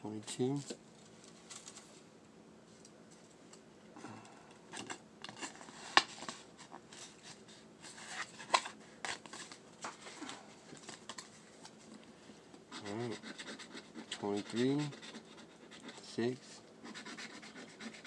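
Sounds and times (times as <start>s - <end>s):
paper rustling and crinkling: 0.6s - 2.0s.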